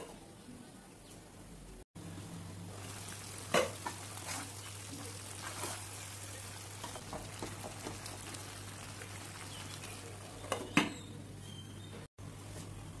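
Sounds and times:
faint sizzle: 0:02.0 - 0:10.6
spatula stirring vegetables in pan: 0:02.8 - 0:10.0.

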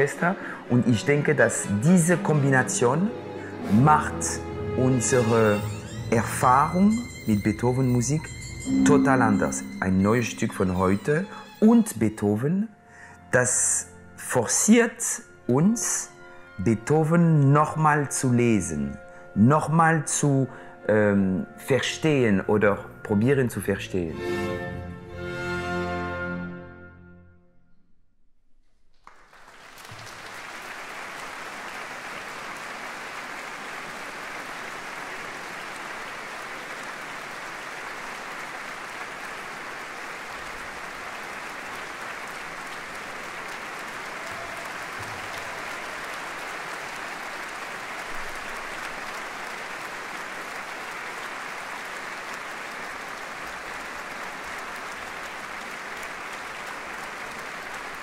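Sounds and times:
audience applauding: 0:29.0 - 0:58.0.

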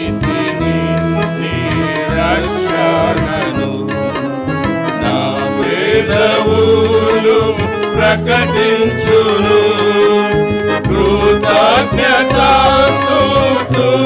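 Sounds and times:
keyboard with rhythmic backing beat: 0:00.0 - 0:14.0
men singing a hymn: 0:00.0 - 0:14.0.

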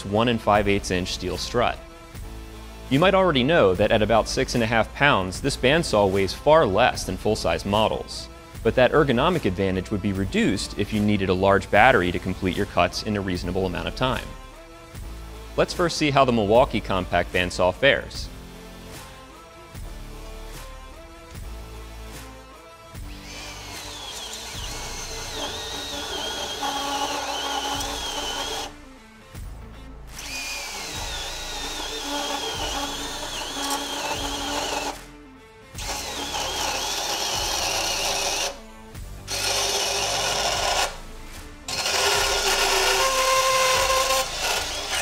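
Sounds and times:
background music: 0:00.0 - 0:45.0
bandsaw blade whining on metal: 0:23.0 - 0:28.7, 0:30.1 - 0:35.0, 0:35.8 - 0:41.1, 0:41.7 - 0:45.0.

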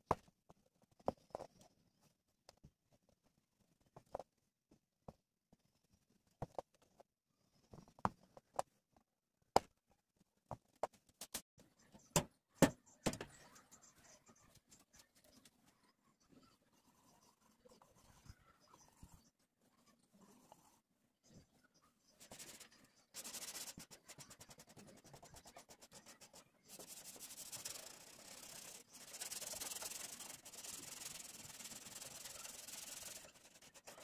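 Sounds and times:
scratching on metal: 0:26.7 - 0:34.0.

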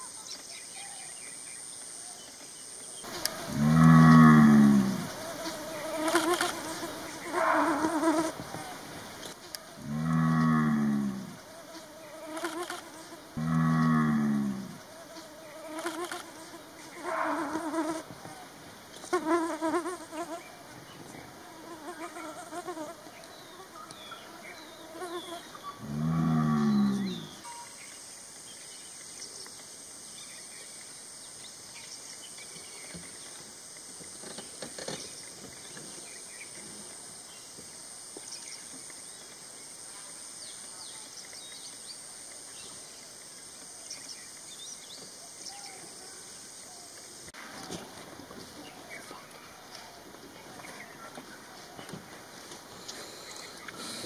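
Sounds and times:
deep moo-like animal calls: 0:03.2 - 0:05.8, 0:07.2 - 0:08.4, 0:09.8 - 0:11.4, 0:13.4 - 0:14.8, 0:25.7 - 0:27.4.

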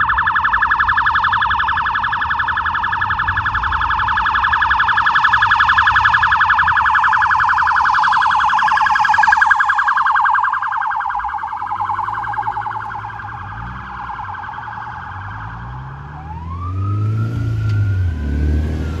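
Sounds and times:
siren slow rising wail: 0:00.0 - 0:19.0
siren yelping: 0:00.0 - 0:19.0
vehicle engines accelerating: 0:11.9 - 0:19.0.

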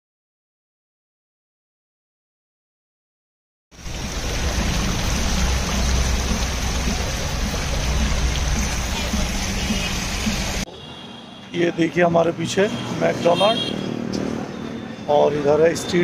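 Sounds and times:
fountain water splashing: 0:03.8 - 0:10.7.

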